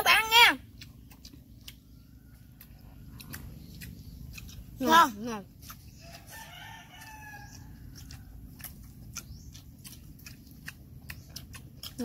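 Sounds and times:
rooster crowing: 6.0 - 8.4.

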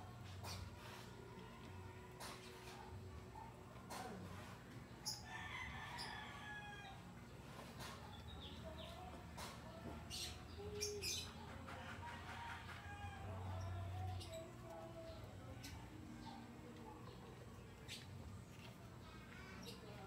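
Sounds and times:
rooster crowing: 5.1 - 7.1, 11.8 - 13.6.

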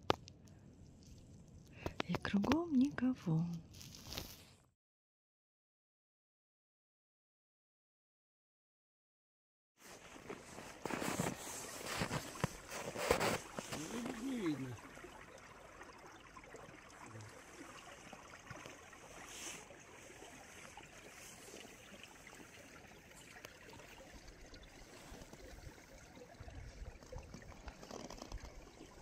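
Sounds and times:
river water trickling: 9.8 - 29.0.

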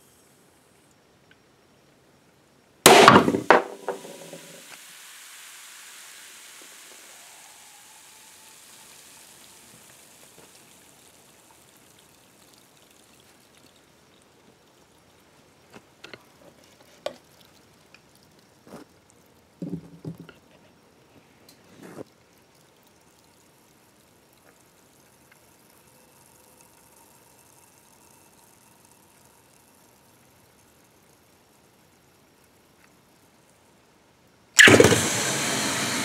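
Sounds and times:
soda can bursting pop: 2.9 - 11.6, 34.6 - 36.0
soda hissing: 2.9 - 18.9, 34.6 - 36.0.

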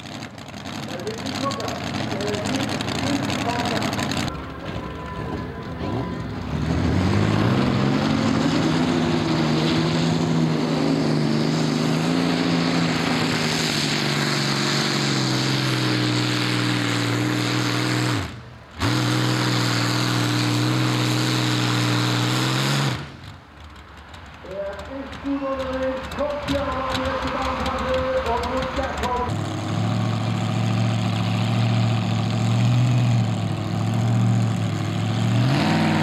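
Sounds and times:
engine starting and idling: 0.0 - 7.5.

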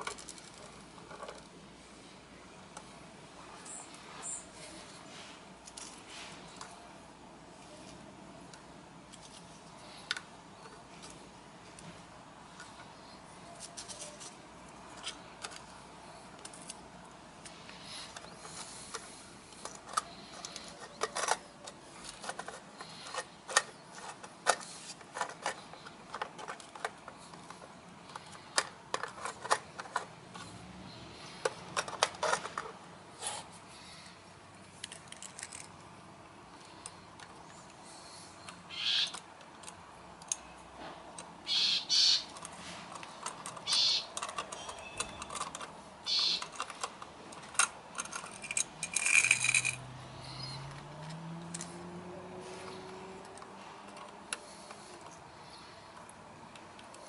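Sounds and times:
clicks of small toy parts handled: 17.4 - 30.5, 34.8 - 35.7, 42.3 - 49.8.

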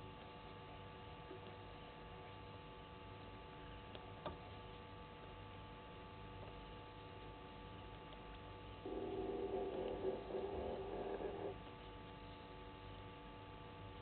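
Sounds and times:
hum of held tones: 8.7 - 14.0.

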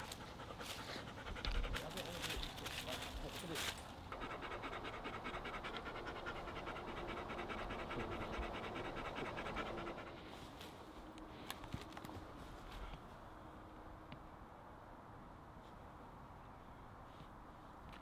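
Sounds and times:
dog panting: 0.0 - 10.5.

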